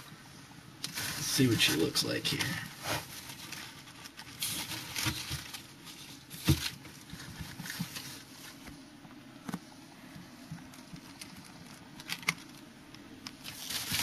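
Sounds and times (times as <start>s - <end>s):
handling rustling: 0.8s - 8.8s, 13.3s - 14.0s.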